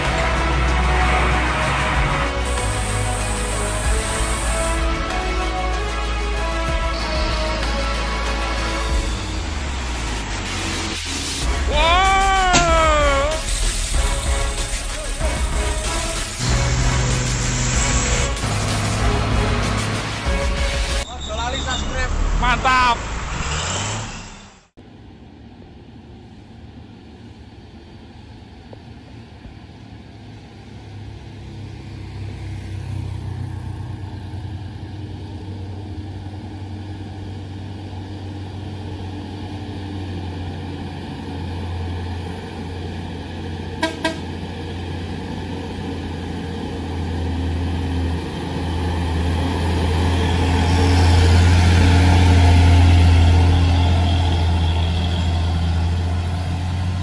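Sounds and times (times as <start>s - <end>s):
diesel truck engine labouring: 0.0s - 57.0s
music and voice: 11.6s - 13.5s, 21.1s - 23.1s
truck horn toots: 43.8s - 44.5s, 53.2s - 55.8s.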